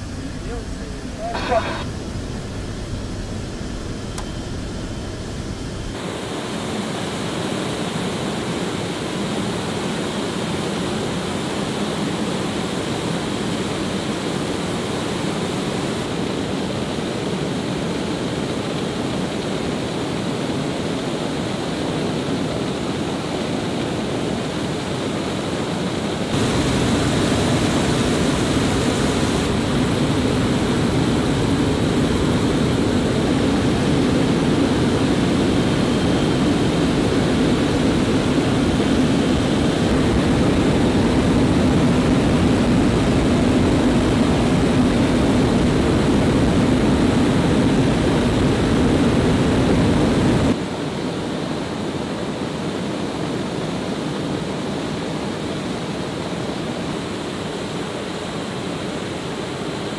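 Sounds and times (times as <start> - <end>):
rushing air: 0.0 - 6.1
turboprop engines droning: 0.0 - 7.4, 8.8 - 50.6.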